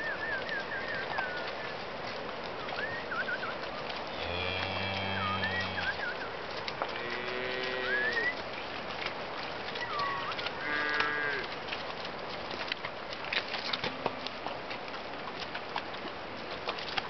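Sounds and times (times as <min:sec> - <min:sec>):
hooves clicking and knocking: 0:00.0 - 0:17.0
cow mooing: 0:04.1 - 0:06.0, 0:06.9 - 0:08.3, 0:09.9 - 0:11.5.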